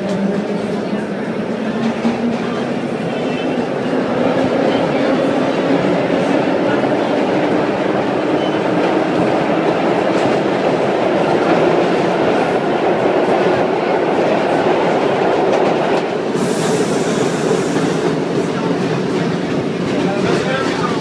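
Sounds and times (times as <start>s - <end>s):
subway car wheels rumbling: 0.0s - 21.0s.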